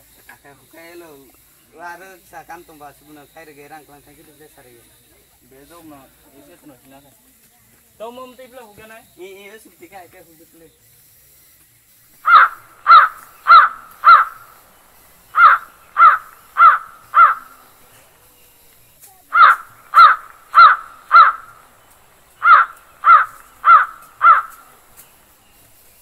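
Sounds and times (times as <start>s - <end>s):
crow cawing: 12.2s - 14.6s, 15.3s - 17.8s, 19.3s - 21.7s, 22.3s - 24.9s.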